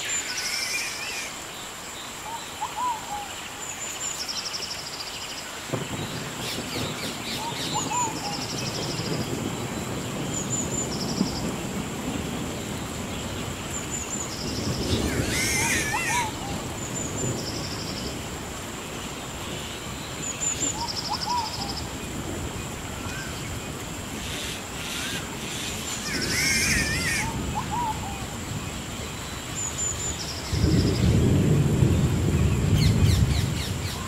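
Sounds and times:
bird calls: 0:00.0 - 0:09.3, 0:13.4 - 0:18.1, 0:19.4 - 0:22.0, 0:23.0 - 0:28.4
rain hissing: 0:00.0 - 0:34.0
thunder rumbling: 0:05.6 - 0:34.0.

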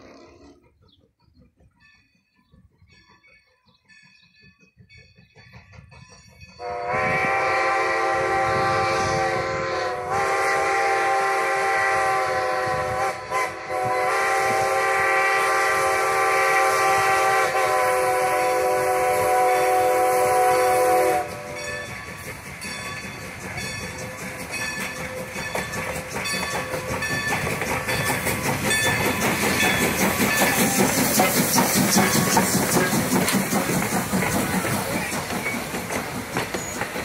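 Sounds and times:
steam train rumbling on rails: 0:00.0 - 0:37.0
steam whistle blowing: 0:06.6 - 0:21.7.

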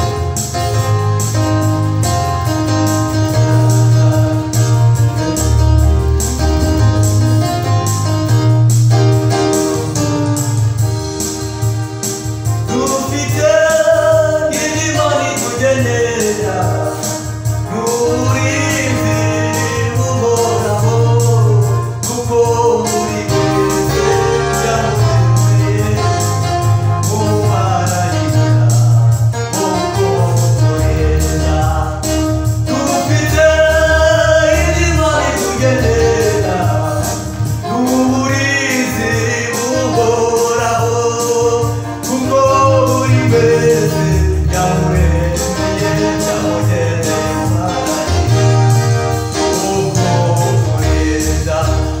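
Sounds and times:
electronic keyboard: 0:00.0 - 0:52.0
steady bass line: 0:00.0 - 0:52.0
young men singing gospel: 0:12.7 - 0:52.0.

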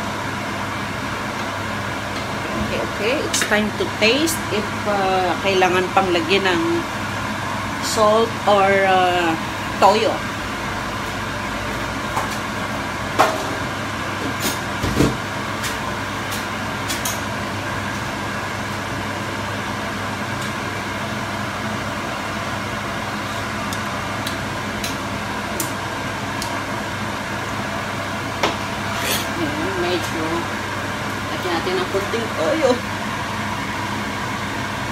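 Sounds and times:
steady whirring hum: 0:00.0 - 0:34.9.

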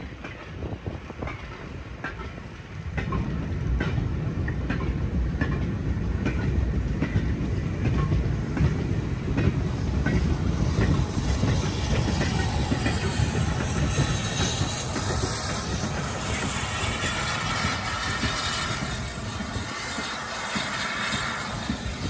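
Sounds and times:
low rumble of rolling wagons: 0:00.0 - 0:22.0
train wheels clicking over rail joints: 0:00.0 - 0:22.0
hiss: 0:10.2 - 0:22.0.

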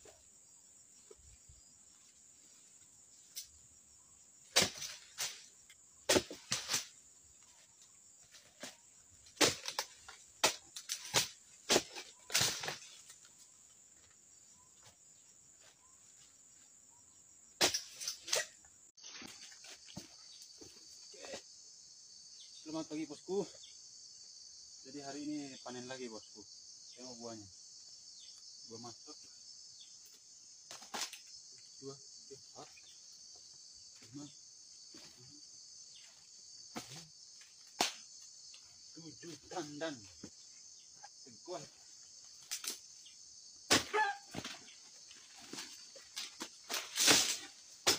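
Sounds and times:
insect chorus buzzing: 0:00.0 - 0:47.9
undergrowth snapping: 0:42.4 - 0:42.8.

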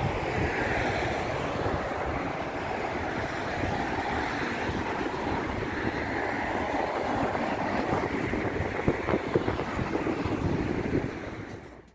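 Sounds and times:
cars driving past: 0:00.0 - 0:11.9.

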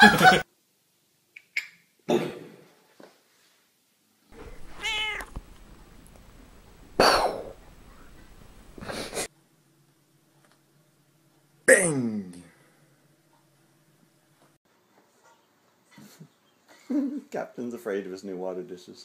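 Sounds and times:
cat meowing: 0:04.4 - 0:06.0.

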